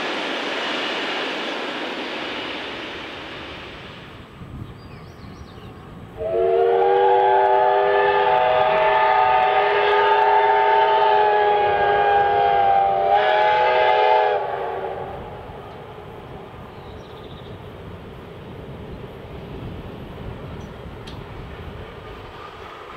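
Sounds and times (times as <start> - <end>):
steam locomotive whistle: 6.2 - 15.6.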